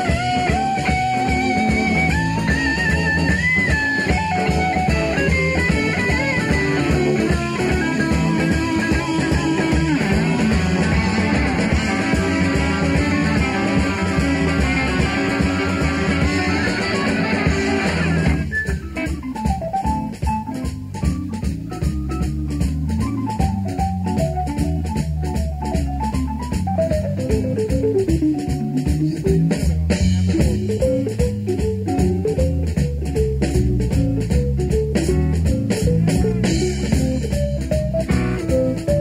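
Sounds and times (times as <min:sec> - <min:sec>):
live rock band: 0:00.0 - 0:39.0.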